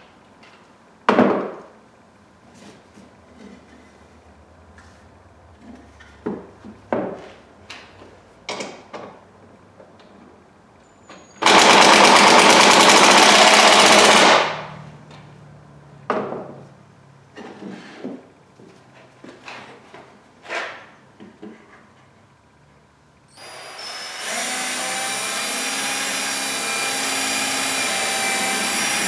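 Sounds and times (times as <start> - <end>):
impact driver rattling: 11.4 - 14.7.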